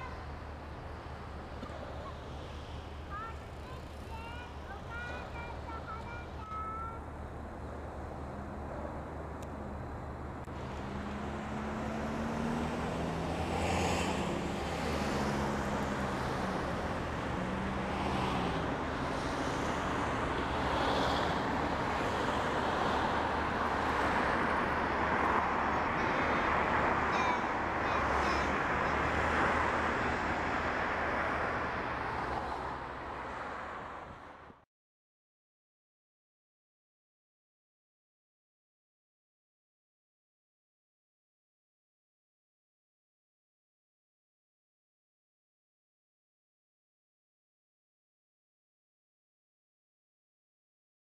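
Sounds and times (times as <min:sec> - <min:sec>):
heavy engine humming: 0:00.0 - 0:13.5, 0:14.3 - 0:32.1
traffic rumble and hiss: 0:00.0 - 0:34.6.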